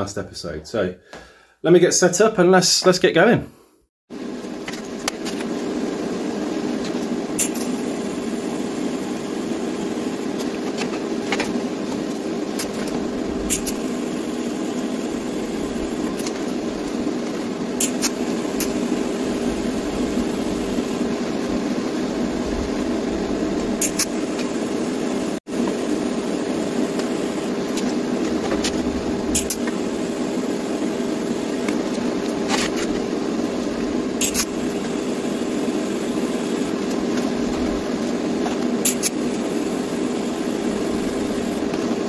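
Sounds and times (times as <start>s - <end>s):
machine hum: 4.1s - 42.0s.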